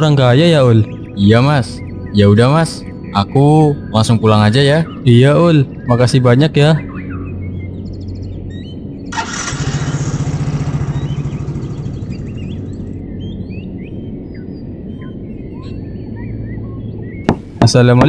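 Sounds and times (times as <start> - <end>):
birds chirping: 0.0 - 18.0
steady low hum: 6.8 - 17.7
motor scooter engine revving: 9.1 - 12.6.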